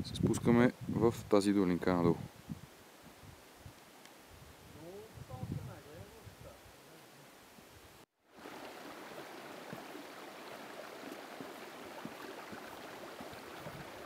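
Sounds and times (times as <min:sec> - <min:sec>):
mountain stream rushing: 0:08.3 - 0:14.0.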